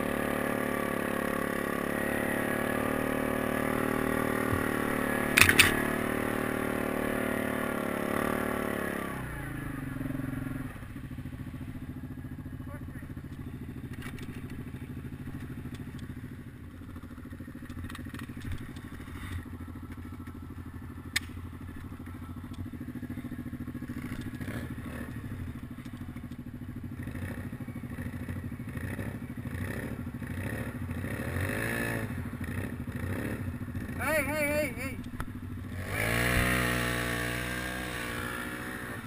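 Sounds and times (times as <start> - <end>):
engine revving: 0.0 - 11.0, 23.8 - 25.4, 27.0 - 35.0, 35.6 - 39.0
atv engine idling: 0.0 - 39.0
sharp click: 5.3 - 5.9.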